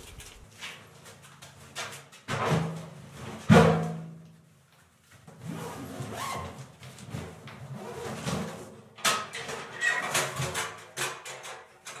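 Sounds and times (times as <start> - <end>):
sharp knock in concrete room: 3.5 - 4.2.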